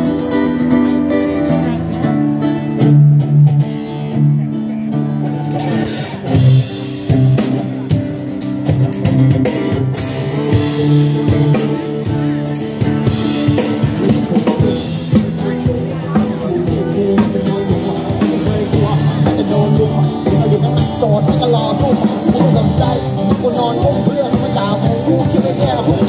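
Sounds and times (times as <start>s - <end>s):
electric guitars: 0.0s - 26.0s
live band playing: 0.0s - 26.0s.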